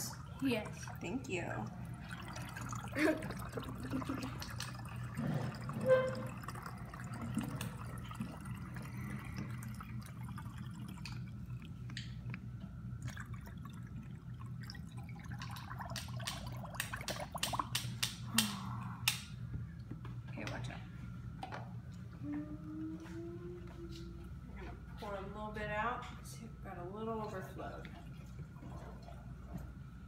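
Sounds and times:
liquid trickling into a bottle: 0.0s - 18.0s
steady low hum: 0.0s - 30.0s.

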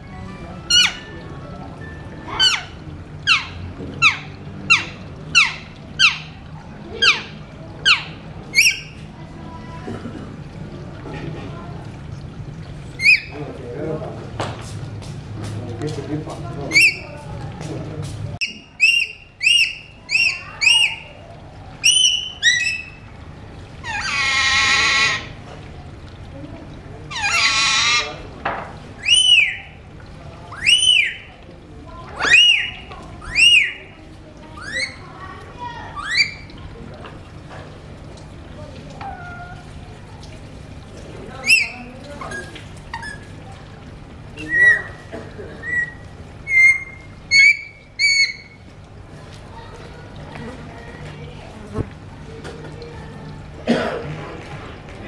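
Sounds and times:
parakeets whistled calls: 7.9s - 9.0s, 13.0s - 13.3s, 16.7s - 17.1s, 18.4s - 21.1s, 21.8s - 23.0s, 23.9s - 25.3s, 27.2s - 28.1s, 29.0s - 29.7s, 30.6s - 31.3s, 32.2s - 33.9s, 34.6s - 35.0s, 36.0s - 36.5s, 41.4s - 43.3s, 44.4s - 44.9s, 45.6s - 48.6s.

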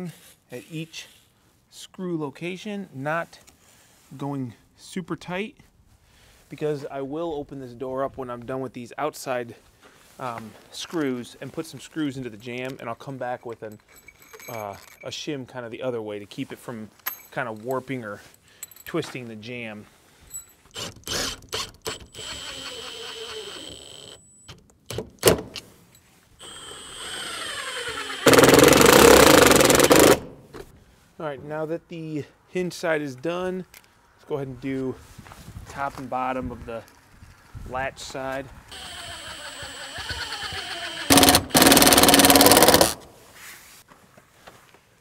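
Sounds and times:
cordless driver driving screws: 20.7s - 24.2s, 26.4s - 30.3s, 38.7s - 43.0s
impact driver hammering: 28.2s - 30.3s, 41.1s - 43.0s.

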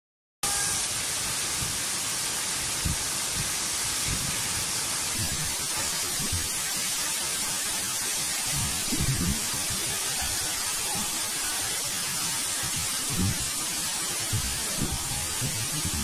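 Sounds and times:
waterfall hissing: 0.4s - 16.0s
low thumps: 8.5s - 9.8s.

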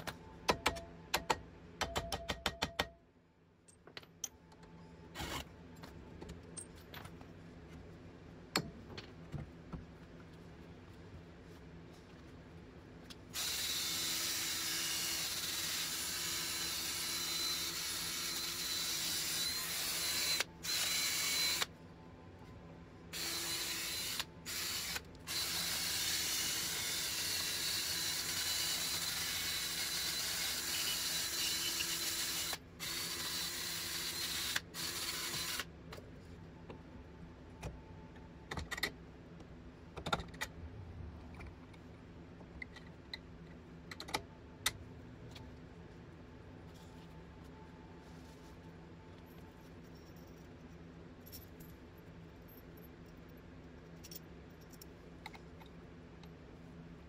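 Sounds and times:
tools clicking and knocking: 0.0s - 3.0s, 3.6s - 4.8s, 38.4s - 39.0s, 40.0s - 40.6s, 42.4s - 45.4s.

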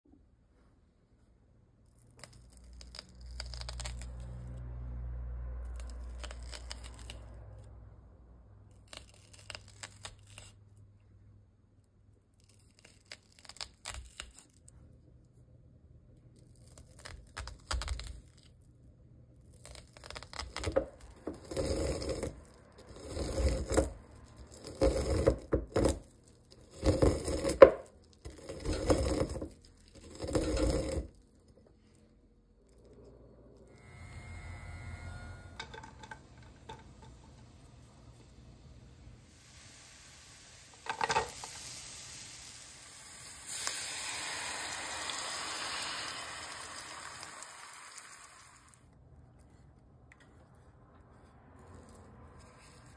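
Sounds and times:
knife slicing corn kernels: 20.1s - 31.1s.

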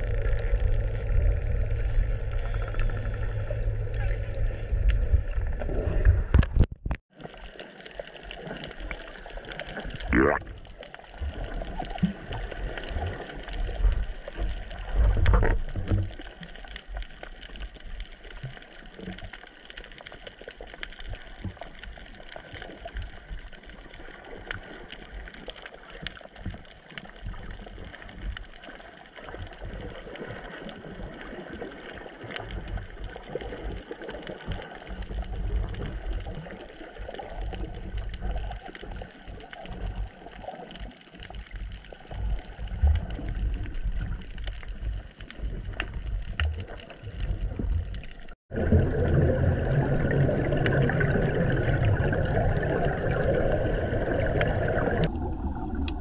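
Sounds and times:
muffled underwater noise: 0.0s - 6.6s, 8.4s - 10.7s
low water rumbles: 0.0s - 56.0s.

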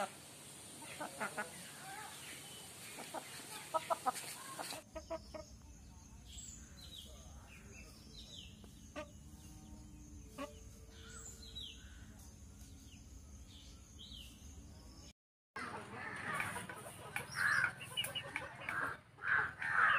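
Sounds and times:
outdoor background noise: 0.0s - 19.9s
small birds chirping: 0.0s - 19.9s
crow cawing: 17.3s - 17.7s, 18.7s - 19.9s.

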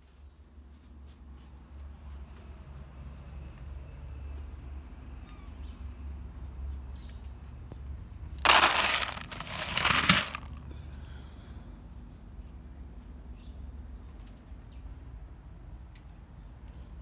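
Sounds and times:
kibble rattling into metal bowl: 8.4s - 10.6s.

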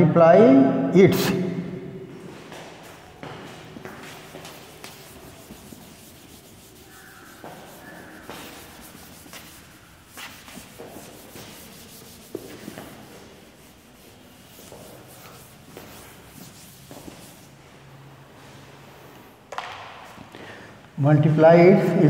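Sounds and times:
duster wiping chalkboard: 2.3s - 18.1s.

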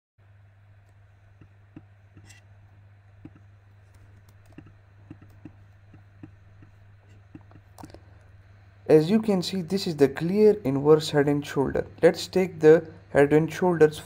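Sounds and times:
steady low hum: 0.2s - 14.0s
mouse and keyboard clicks: 0.9s - 2.4s, 3.2s - 8.0s.

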